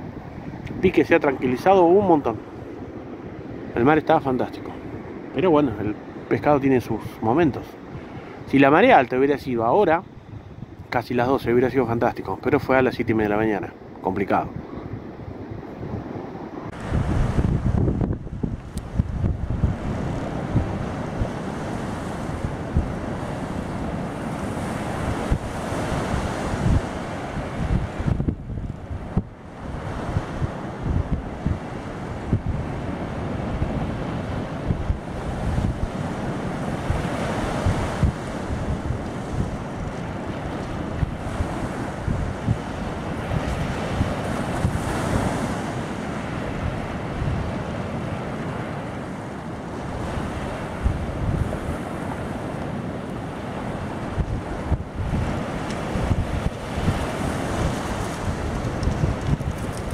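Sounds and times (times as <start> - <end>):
wind buffeting microphone: 0.0 - 9.0, 9.6 - 11.4, 13.9 - 59.9
ocean surf breaking: 0.0 - 59.9
surf breaking on pebble beach: 54.5 - 59.9.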